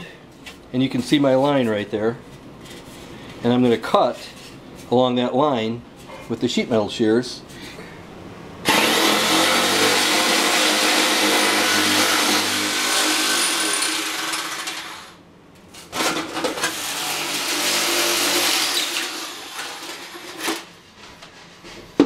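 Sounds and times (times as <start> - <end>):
electric shears cutting metal: 8.6 - 15.2, 15.9 - 20.6.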